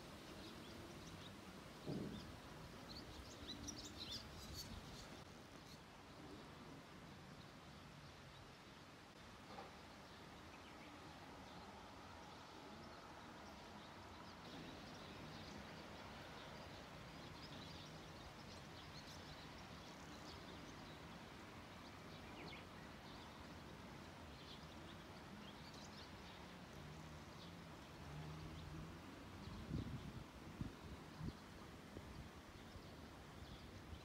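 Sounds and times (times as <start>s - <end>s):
faint bird chirps: 0.2s - 6.6s.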